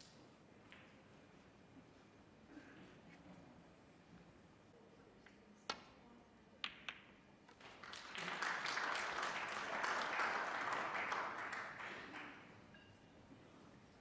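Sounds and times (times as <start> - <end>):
audience applause: 7.6 - 12.5.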